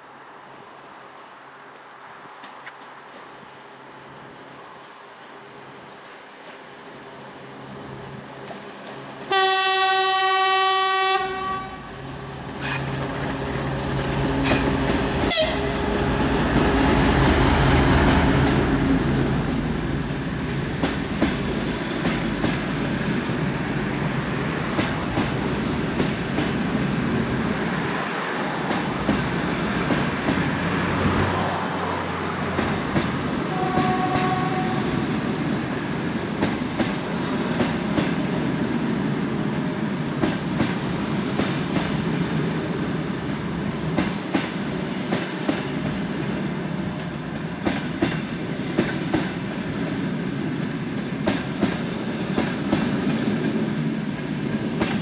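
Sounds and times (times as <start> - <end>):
locomotive horn blast: 9.3 - 12.0, 14.4 - 16.4, 33.5 - 34.9
diesel engine passing: 11.8 - 20.8, 27.6 - 33.5
train wheels clickety-clack: 12.6 - 19.8, 20.5 - 27.3, 28.5 - 31.6, 32.4 - 35.6, 36.3 - 42.2, 43.2 - 55.0.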